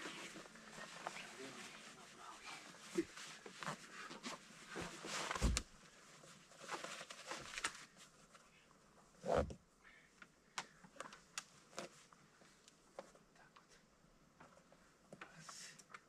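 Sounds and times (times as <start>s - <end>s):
clothing rustling: 0.0s - 8.5s.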